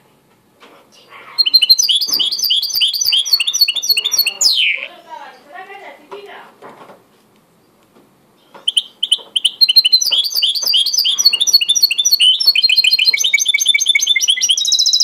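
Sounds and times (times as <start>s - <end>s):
bird singing chirps and trills: 1.0s - 5.6s, 8.4s - 15.0s.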